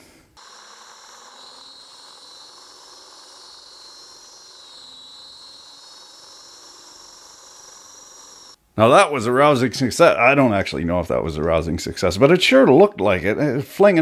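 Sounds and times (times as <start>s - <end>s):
air blast hissing: 0.0s - 8.2s
high whine of spinning guard: 0.0s - 8.6s.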